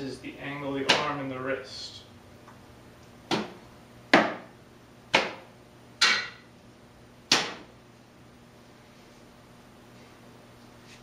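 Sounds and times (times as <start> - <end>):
sword hitting training dummy: 6.0 - 6.4, 7.3 - 7.6.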